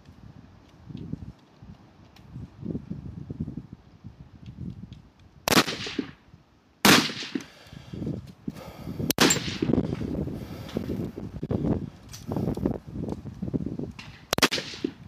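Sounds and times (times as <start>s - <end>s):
wind rumble on microphone: 0.0s - 6.6s, 7.7s - 15.0s
rifle shots echoing: 5.5s - 6.2s, 6.8s - 7.5s, 9.2s - 9.7s, 14.3s - 15.0s.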